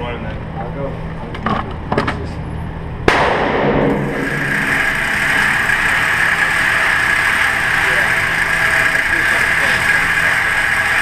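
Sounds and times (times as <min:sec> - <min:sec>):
gunshot with echo: 0:03.1 - 0:04.8
steady noise: 0:03.1 - 0:11.0.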